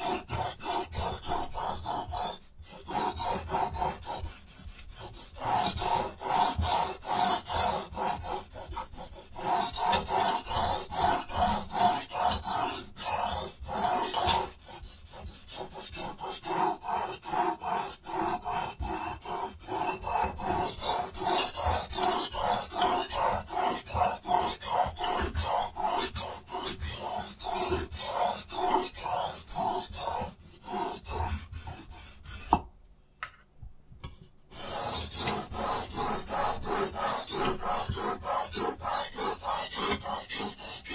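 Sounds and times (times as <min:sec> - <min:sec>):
knife scraping on sharpening stone: 0:34.5 - 0:40.9.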